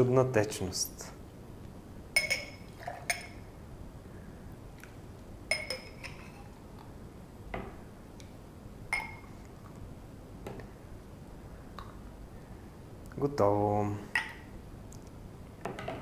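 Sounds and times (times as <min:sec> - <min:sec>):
metal ladle clinking on glass: 0:02.2 - 0:03.4, 0:05.5 - 0:06.3.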